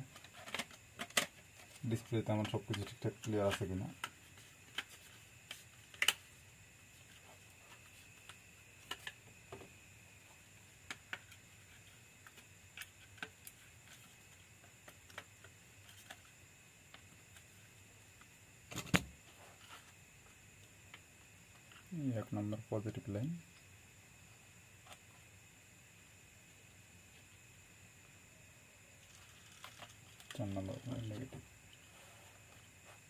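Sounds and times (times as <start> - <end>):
faint steady high whine: 0.0 - 33.0.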